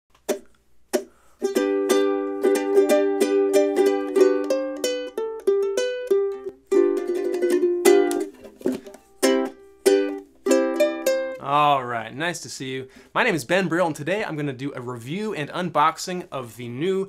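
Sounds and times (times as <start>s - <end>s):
ukulele strummed chords: 0.2s - 11.8s.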